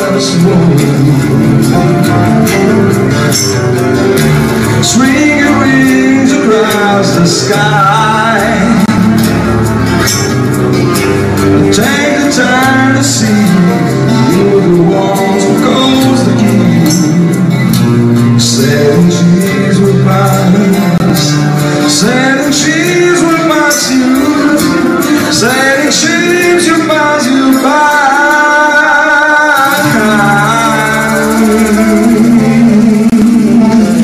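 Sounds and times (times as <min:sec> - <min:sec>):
man singing: 0:00.0 - 0:09.6, 0:11.3 - 0:34.0
acoustic guitars: 0:00.0 - 0:34.0
hand percussion ticking: 0:29.6 - 0:33.5.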